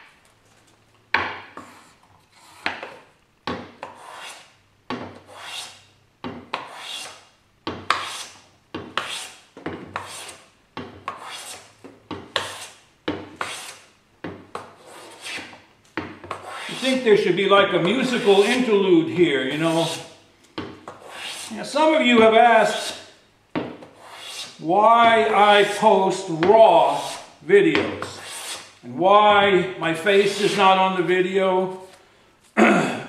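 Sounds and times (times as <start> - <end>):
hand plane strokes on wood: 3.8 - 4.4, 5.1 - 5.8, 6.5 - 7.2, 9.0 - 10.4, 11.1 - 11.6, 12.3 - 12.7, 13.4 - 13.8, 14.7 - 15.6, 16.2 - 17.2, 17.8 - 18.8, 19.4 - 20.1, 20.9 - 23.1, 23.8 - 28.8.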